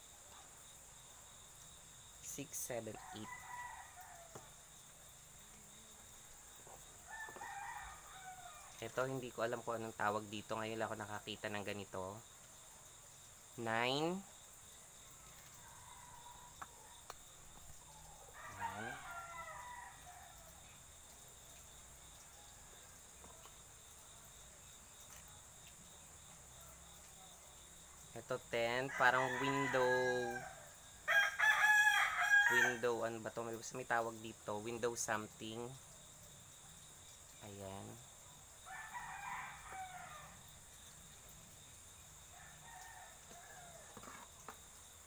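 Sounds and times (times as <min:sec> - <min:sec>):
faint rooster crowing: 0:02.8 - 0:04.7, 0:06.3 - 0:09.1, 0:15.0 - 0:23.6, 0:28.1 - 0:33.1, 0:38.6 - 0:41.0, 0:42.2 - 0:44.6
high-pitched insect drone: 0:13.3 - 0:21.2
light knocks of boxes and pots: 0:23.1 - 0:23.6, 0:43.2 - 0:44.7.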